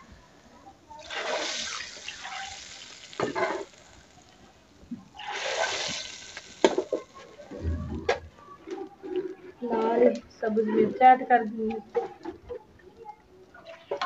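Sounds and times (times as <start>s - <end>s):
hot oil sizzling: 0.0s - 8.6s.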